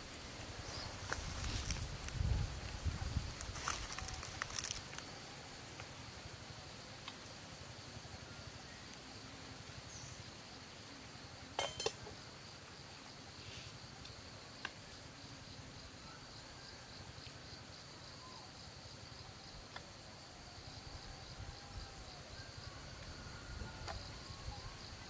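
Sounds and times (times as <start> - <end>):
insects shrilling: 0.1 - 5.2
chopsticks clattering against a bowl: 11.6 - 12.0.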